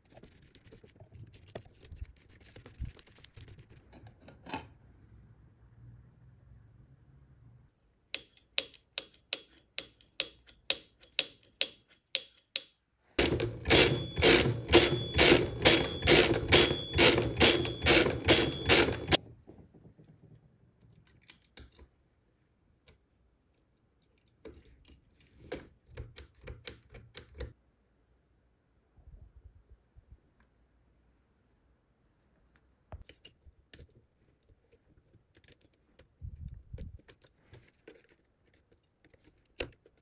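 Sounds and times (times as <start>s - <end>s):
mechanical bell dinging: 13.2s - 19.2s.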